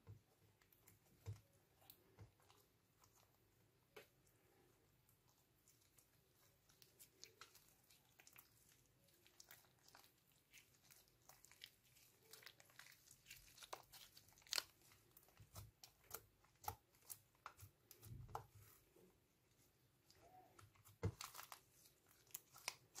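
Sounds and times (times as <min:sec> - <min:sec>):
slime crackling and popping: 0:06.6 - 0:18.5, 0:20.2 - 0:23.0.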